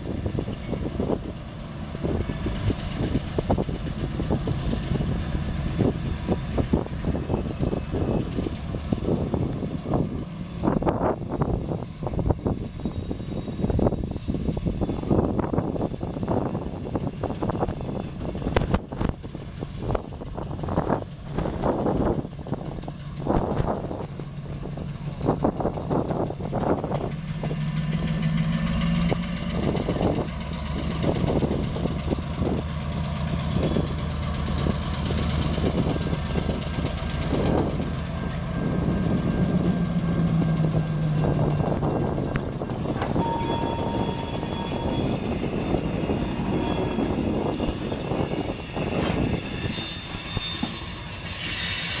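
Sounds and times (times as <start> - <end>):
locomotive diesel engine: 0.0 - 52.0
wheel squeal on rail: 2.0 - 52.0
wheels clicking over rail joints: 39.2 - 52.0.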